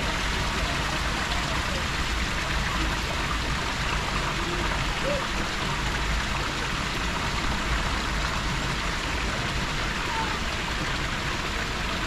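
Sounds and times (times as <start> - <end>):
running water rushing: 0.0 - 12.0.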